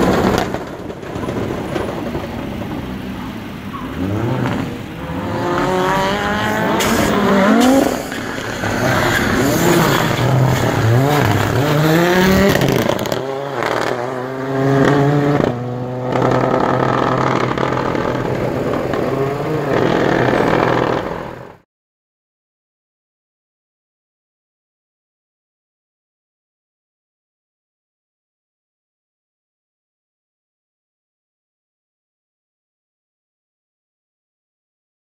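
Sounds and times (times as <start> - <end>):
rally car accelerating past: 3.9 - 21.5.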